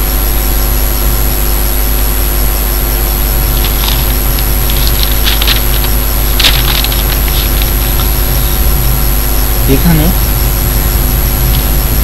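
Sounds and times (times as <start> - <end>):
hum and hiss: 0.0 - 12.0
steady tones: 2.6 - 12.0
scratchy crackles: 3.4 - 8.4.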